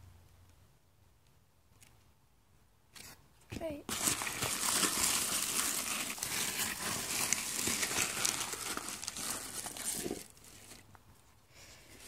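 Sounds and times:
shredded paper rustling: 3.9s - 10.8s.

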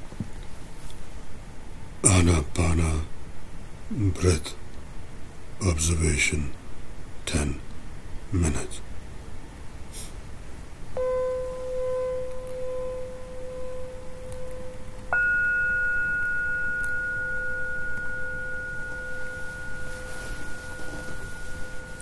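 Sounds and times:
low steady tone: 10.9s - 22.0s
higher steady tone: 11.0s - 22.0s.

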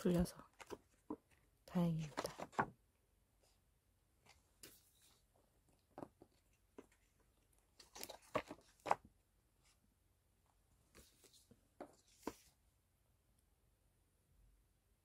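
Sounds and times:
paper cards rustling and sliding: 2.0s - 2.8s, 4.3s - 5.3s, 6.0s - 9.1s, 10.9s - 12.6s.

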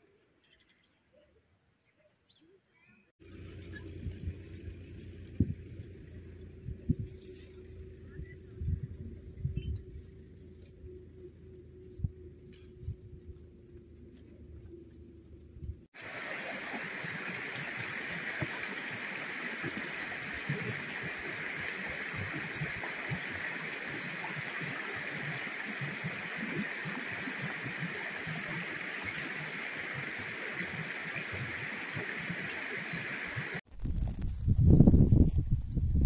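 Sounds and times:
stream running over stones: 16.0s - 33.6s.

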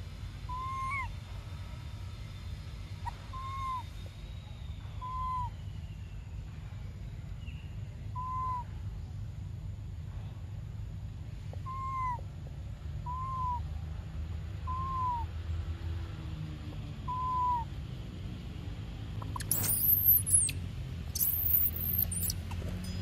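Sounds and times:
hoot-like calls: 0.5s - 1.1s, 3.0s - 3.9s, 5.0s - 5.6s, 8.2s - 8.7s, 11.6s - 12.2s, 13.0s - 13.6s, 14.7s - 15.3s, 17.1s - 17.7s
baby monkey screaming: 0.5s - 1.2s, 3.0s - 3.9s, 5.0s - 5.5s, 8.2s - 8.7s, 11.6s - 12.2s, 13.0s - 13.6s, 14.7s - 15.3s, 17.1s - 17.7s, 19.2s - 20.6s, 21.2s - 22.4s.

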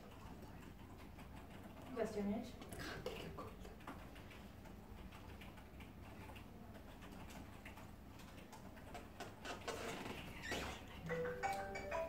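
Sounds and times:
typing on keyboard: 3.6s - 10.0s.

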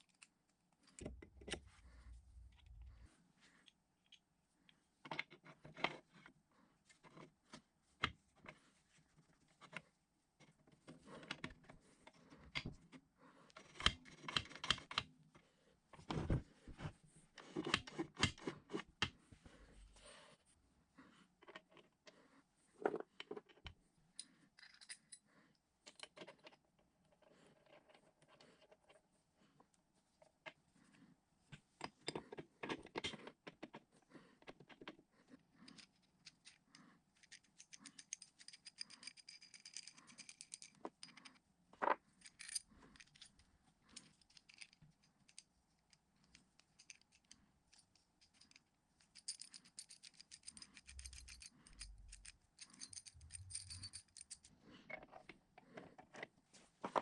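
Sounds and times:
steel parts clinking on wood: 37.2s - 41.4s, 46.6s - 54.5s.

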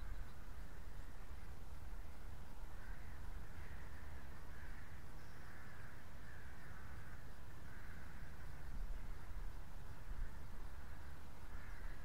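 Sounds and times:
birds calling: 0.0s - 1.4s, 2.0s - 12.0s.

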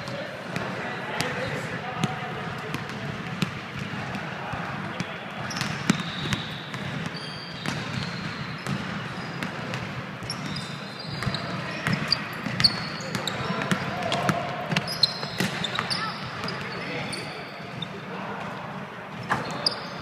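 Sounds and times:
echo of large hall: 0.0s - 20.0s
sneakers squeaking: 4.6s - 20.0s.

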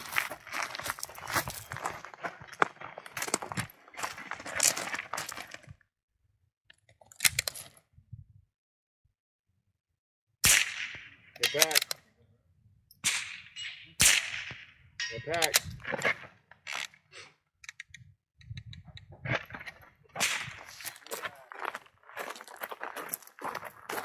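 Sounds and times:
rifle shots: 10.4s - 11.8s, 13.0s - 14.7s.

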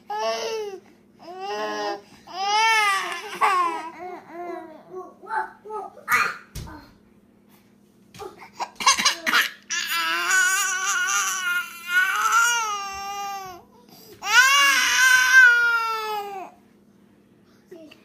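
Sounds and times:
baby wailing: 9.7s - 13.6s, 14.2s - 16.5s.

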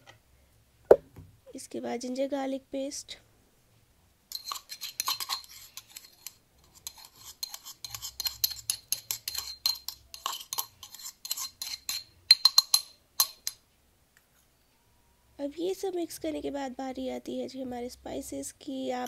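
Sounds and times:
spoon clinking and scraping bowl: 4.3s - 13.6s.

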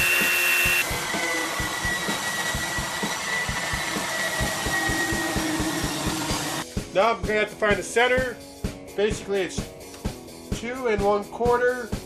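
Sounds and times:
power sander whining: 0.0s - 6.6s.

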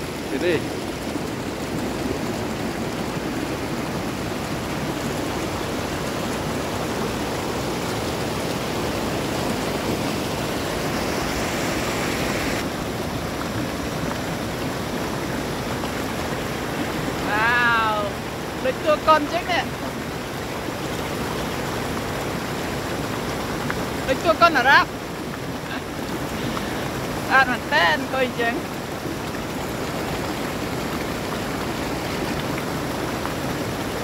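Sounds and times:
waterfall roaring: 0.0s - 34.0s
high hiss: 10.7s - 12.6s.

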